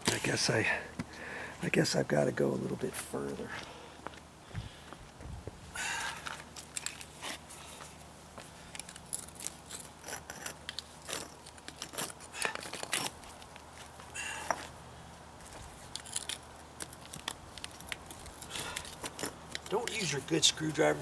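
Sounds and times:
brick pavers scraping and clicking: 6.1 - 14.8, 15.4 - 21.0.

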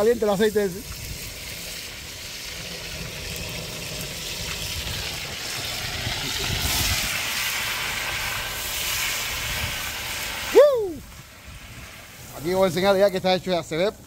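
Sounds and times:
fish sizzling in hot oil: 0.0 - 14.0
wind rumble on microphone: 4.2 - 12.6.

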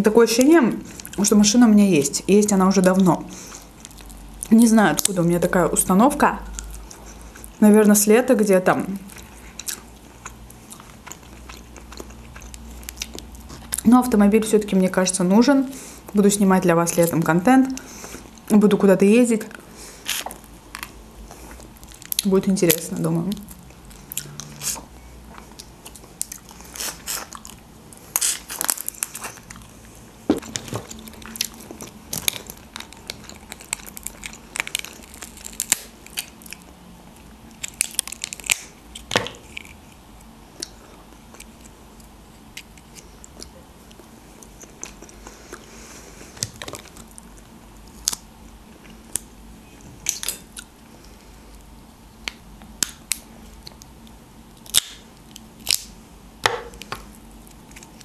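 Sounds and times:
chewing: 9.1 - 13.8, 23.4 - 48.2
lobster shell cracking: 30.3 - 36.7, 37.4 - 43.5, 50.0 - 50.7, 52.2 - 58.0.

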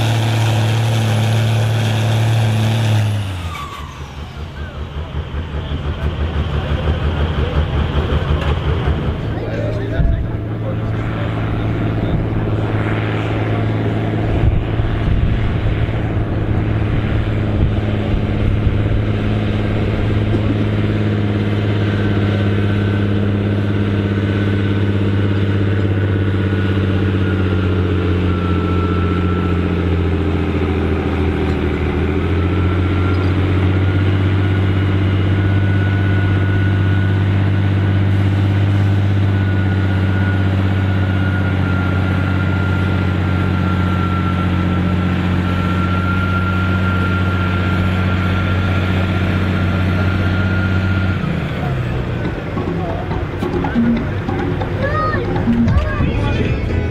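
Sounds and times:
tractor diesel engine under load: 0.0 - 56.9
high whine: 9.1 - 34.0, 52.3 - 56.9.

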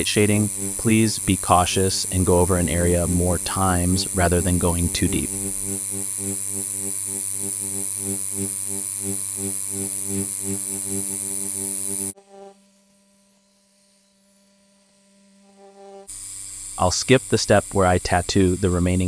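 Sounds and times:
faint hum: 0.0 - 12.2
tattoo pen buzzing: 0.0 - 19.0.

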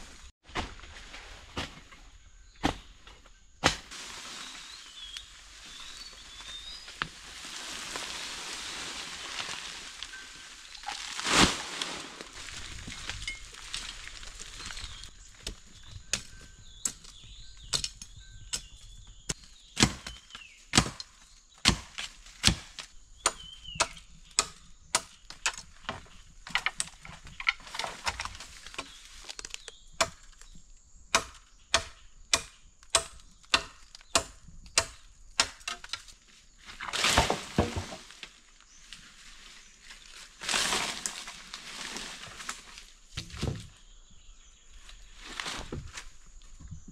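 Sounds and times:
blade chopping wood: 3.6 - 3.9, 19.3 - 27.0, 31.1 - 36.0.

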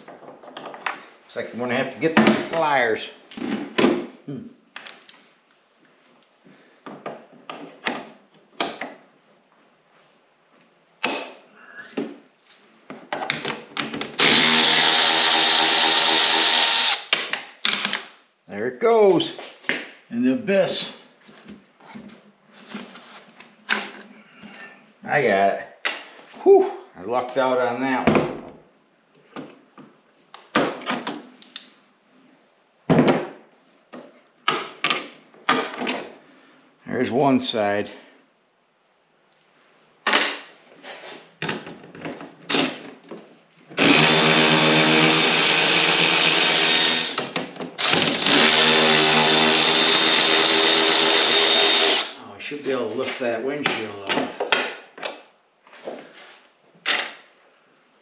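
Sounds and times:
cordless drill running: 14.2 - 17.1, 43.8 - 47.2, 47.8 - 52.2.

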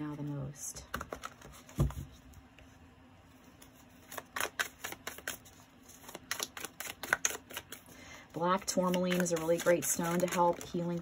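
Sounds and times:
cards being shuffled: 3.6 - 11.0.

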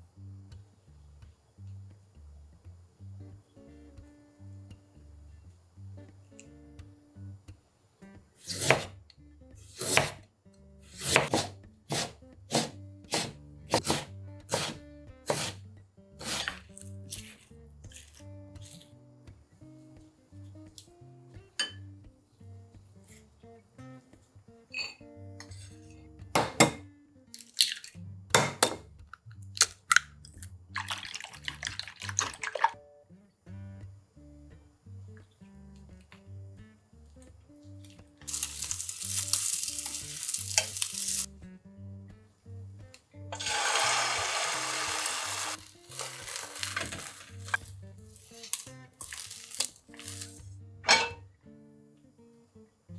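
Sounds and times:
knife cutting carrot on board: 8.4 - 9.0, 9.6 - 10.2, 10.9 - 15.6, 16.2 - 18.9
eggs cracked against bowl: 27.3 - 28.8, 45.7 - 50.3.

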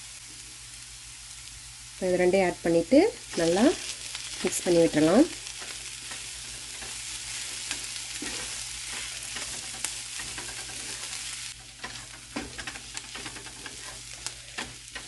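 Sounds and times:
food sizzling in frying pan: 0.0 - 15.0
spatula scraping a pan: 5.4 - 15.0.

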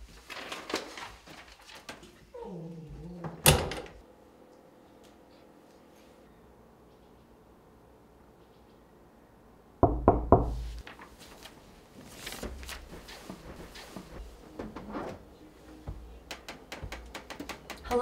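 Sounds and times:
loud knocks on door: 9.8 - 10.7
movement sounds: 10.6 - 18.0.

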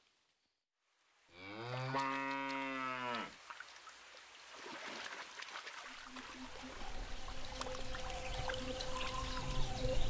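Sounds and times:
cow mooing: 1.4 - 3.3
river water trickling: 2.0 - 10.0.

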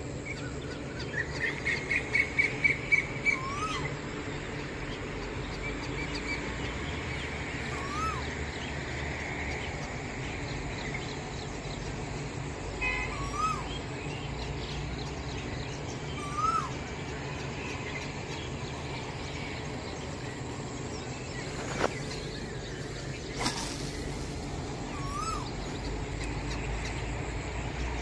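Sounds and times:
steady low hum: 0.0 - 28.0
bird chirps: 0.1 - 8.8, 9.6 - 28.0
rising and falling bird call: 0.2 - 4.1, 7.3 - 8.8, 13.0 - 14.3, 15.7 - 27.3.

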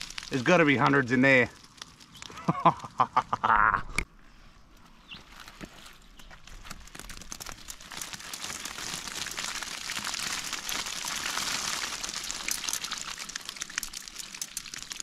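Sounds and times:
crayfish shells clicking and crackling: 0.0 - 3.2, 5.2 - 15.0.

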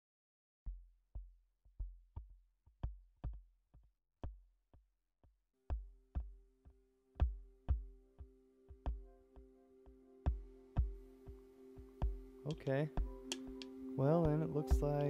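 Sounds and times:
sustained synthesizer chord: 6.9 - 15.0
drum machine beat: 7.2 - 8.0, 8.7 - 9.1, 10.3 - 15.0.

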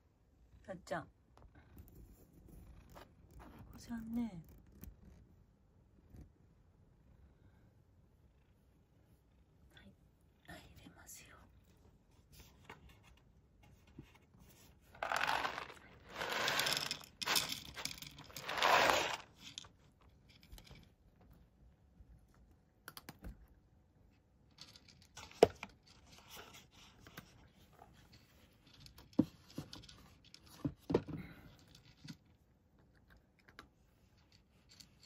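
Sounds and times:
cat crunching kibble: 15.0 - 19.6
kibble pouring into a dish: 15.0 - 19.7.

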